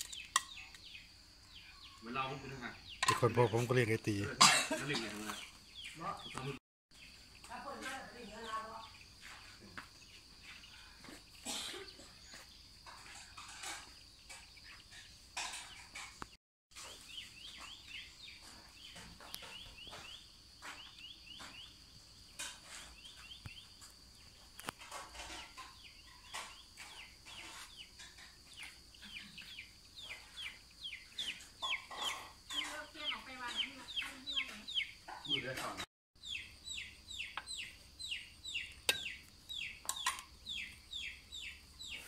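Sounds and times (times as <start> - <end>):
chickens chirping: 24.8 - 42.0.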